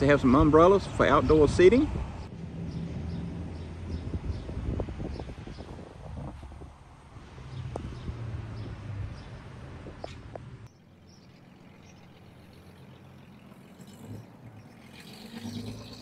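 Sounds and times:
bird chirps: 10.0 - 15.6.

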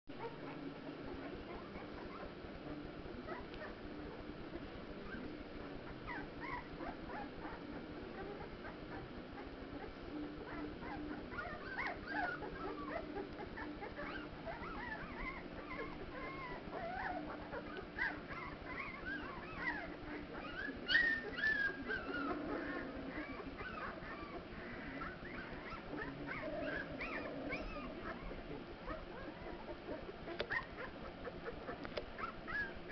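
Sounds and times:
faint low hum: 0.1 - 32.9
puppies squeaking and whimpering: 0.2 - 2.4, 3.1 - 32.9
puppy squealing: 10.5 - 32.9.

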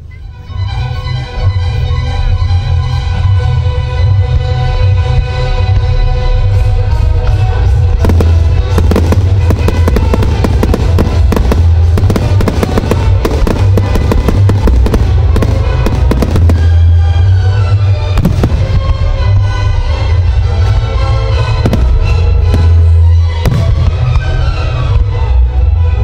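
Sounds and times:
loud music: 0.6 - 26.0
fireworks popping and banging: 8.0 - 17.4, 18.1 - 19.4, 21.6 - 24.2.

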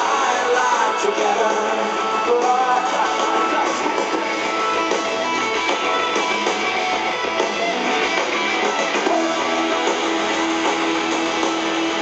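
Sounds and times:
electric guitars: 0.0 - 12.0
live rock band playing: 0.0 - 12.0.

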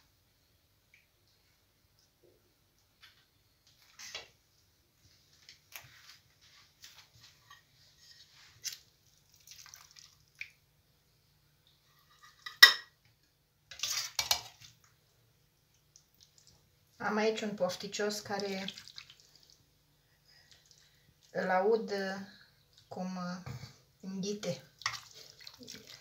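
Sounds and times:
dishes clattering: 12.1 - 13.0.

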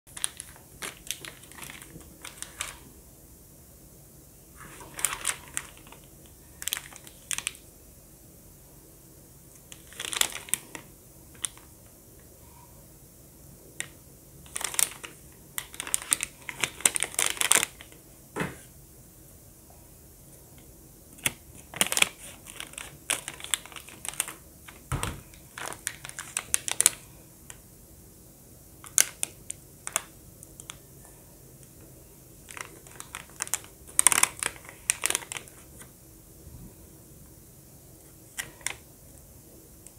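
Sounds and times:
plastic packets crinkling: 0.1 - 2.9, 4.6 - 7.6, 9.6 - 11.7, 13.8 - 18.0, 21.2 - 27.1, 28.8 - 30.8, 32.4 - 35.9, 38.3 - 38.8.

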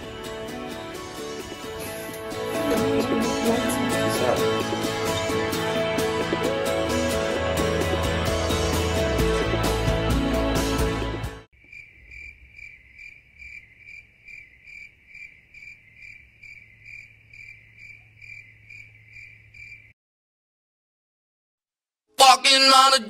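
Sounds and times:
music: 0.0 - 11.5
cricket chirping: 11.6 - 20.0.

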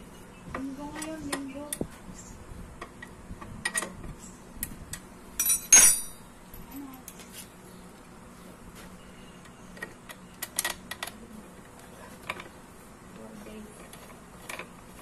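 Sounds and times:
sharp ringing metallic clink: 5.4 - 6.2.

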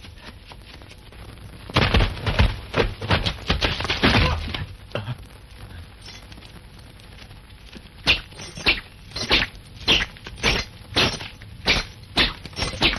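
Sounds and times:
sword striking hits: 8.1 - 12.9.

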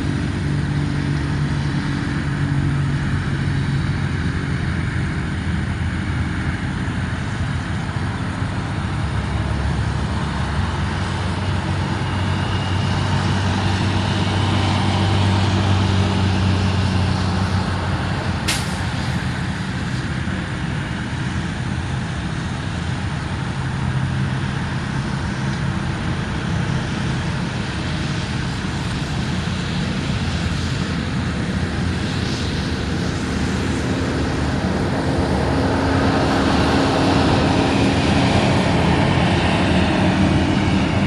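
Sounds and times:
jet engine noise: 0.0 - 41.0
truck engine hum: 0.0 - 41.0.

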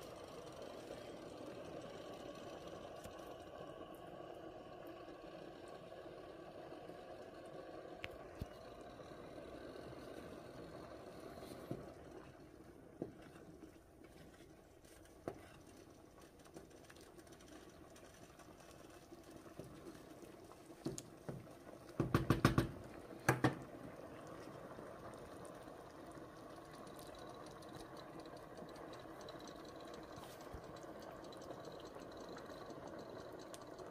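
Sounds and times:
soup boiling and bubbling: 0.0 - 33.9
wooden spoon knocking on pot: 22.0 - 23.7.

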